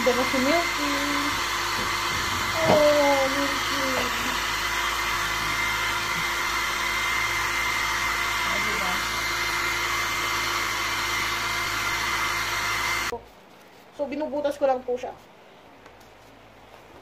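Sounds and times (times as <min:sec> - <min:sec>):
hair dryer running: 0:00.0 - 0:13.2.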